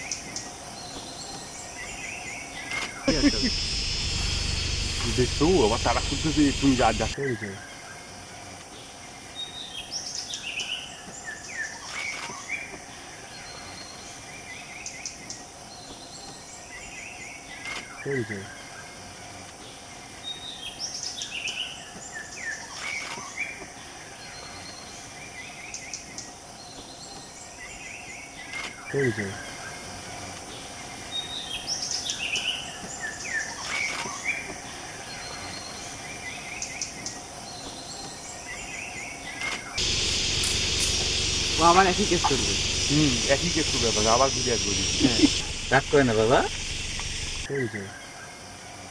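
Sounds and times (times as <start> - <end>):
birds chirping: 0.0 - 48.9
insect hum: 0.0 - 48.9
birds chirping and whistling: 31.0 - 48.2.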